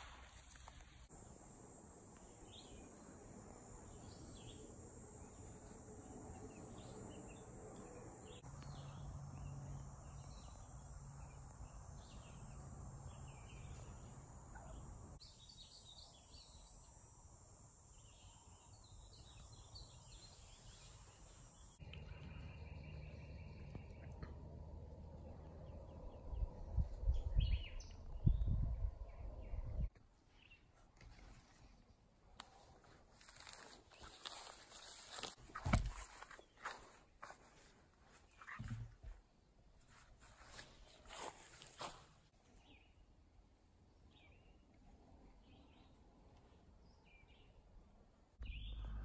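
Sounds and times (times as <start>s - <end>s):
high insect drone: 0.0s - 23.7s
bird chirps: 48.4s - 49.0s.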